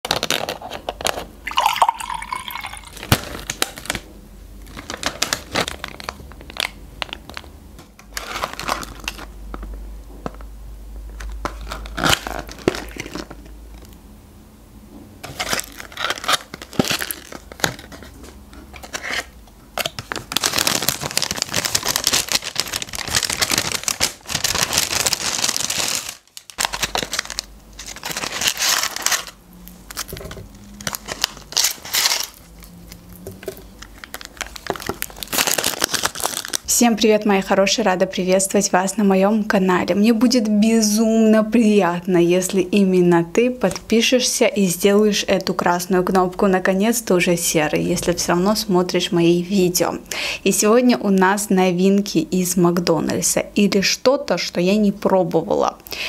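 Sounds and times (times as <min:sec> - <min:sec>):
paper bag rustling: 0:04.6 - 0:07.5, 0:08.1 - 0:09.3, 0:15.2 - 0:36.7.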